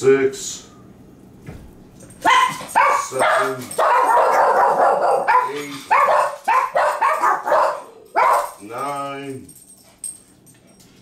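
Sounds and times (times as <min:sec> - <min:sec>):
dog barking: 0:02.2 - 0:08.6.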